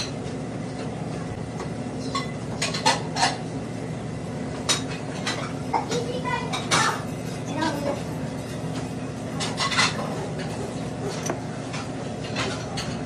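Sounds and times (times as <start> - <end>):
steady low hum: 0.0 - 13.0
dishes and utensils clinking: 2.0 - 3.4, 4.6 - 13.0.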